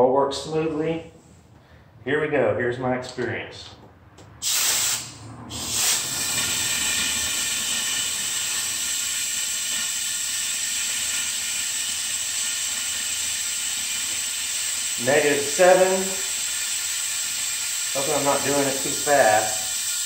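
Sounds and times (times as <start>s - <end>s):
compressed air hissing: 4.4s - 20.0s.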